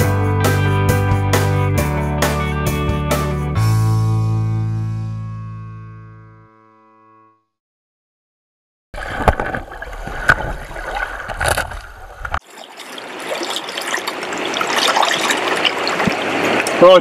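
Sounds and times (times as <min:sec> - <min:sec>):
muffled underwater river churn: 0:09.0 - 0:17.0
river current over stones: 0:09.0 - 0:17.0.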